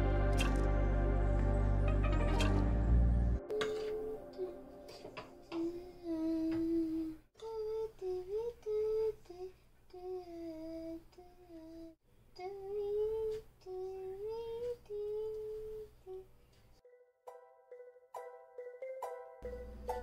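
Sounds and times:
person humming: 3.4s - 16.3s.

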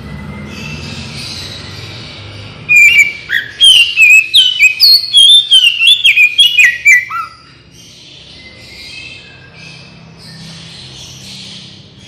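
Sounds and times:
bird singing whistled notes: 2.7s - 11.6s.

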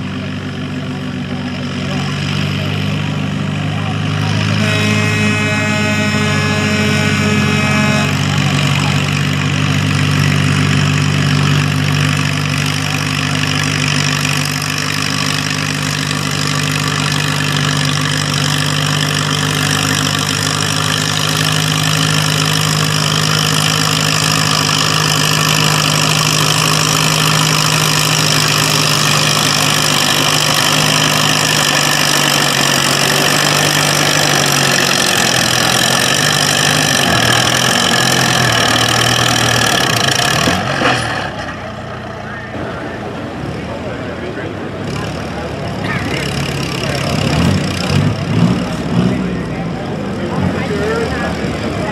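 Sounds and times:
tractor engine running hard: 0.0s - 51.9s.

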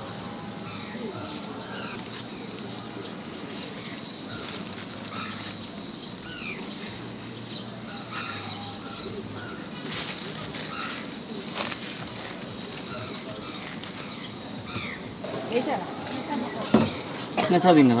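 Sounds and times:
small birds chirping: 0.0s - 17.9s
plastic bag crinkling: 1.6s - 7.3s, 8.6s - 14.5s.

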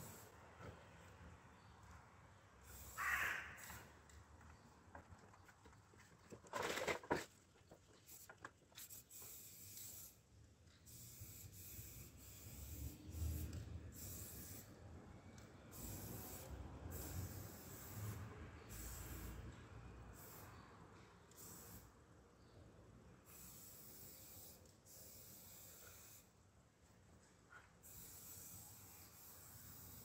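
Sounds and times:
spray paint can hissing: 0.0s - 0.4s, 2.6s - 3.0s, 3.6s - 3.9s, 8.0s - 10.2s, 10.9s - 14.8s, 15.7s - 19.4s, 20.1s - 20.5s, 21.3s - 21.9s, 23.2s - 26.3s, 27.8s - 30.0s.

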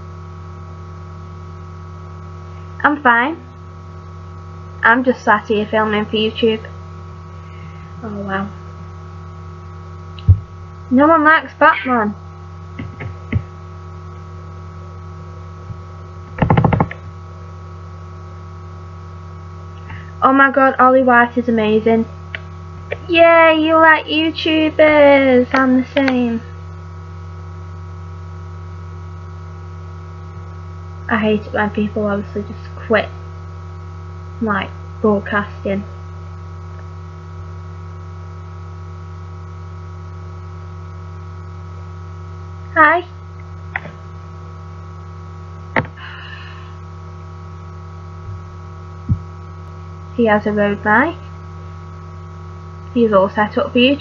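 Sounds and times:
electrical mains hum: 0.0s - 54.0s
loud buzzing burst: 42.6s - 50.2s.

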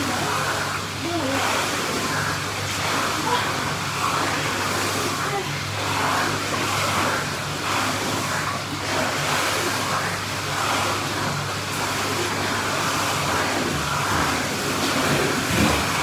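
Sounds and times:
low mechanical hum: 0.0s - 16.0s
pool water churning and splashing: 0.0s - 16.0s.

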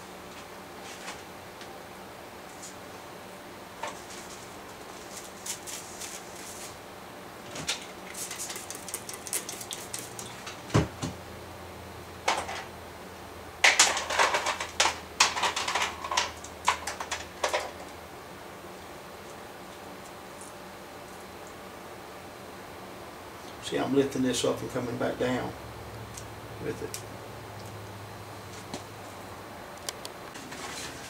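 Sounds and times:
rustling of hair and papers: 3.8s - 6.8s.

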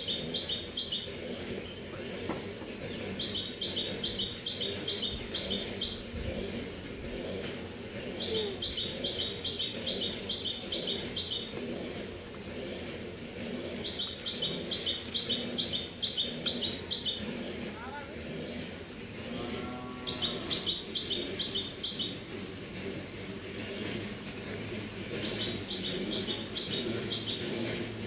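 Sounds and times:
small bird singing: 0.0s - 1.9s, 2.8s - 6.5s, 8.0s - 11.6s, 13.6s - 17.4s, 19.8s - 22.3s, 25.1s - 28.0s.

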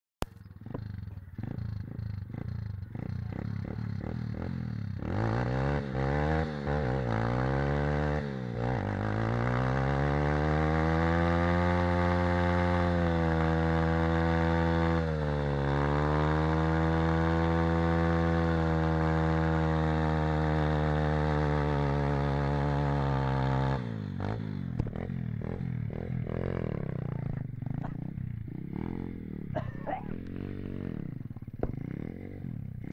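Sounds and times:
motorbike engine revving: 0.2s - 32.9s
rear tyre spinning: 8.8s - 32.9s.

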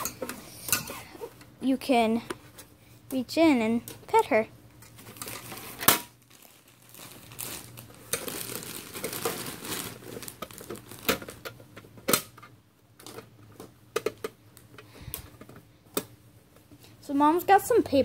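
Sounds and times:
paper bag crinkling: 5.0s - 11.4s.

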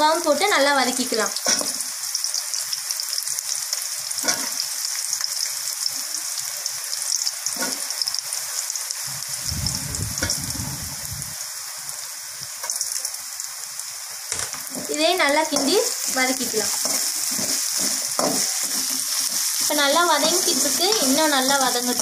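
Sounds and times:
vegetables sizzling in hot oil: 0.0s - 22.0s
low muffled rumble: 9.4s - 11.4s.

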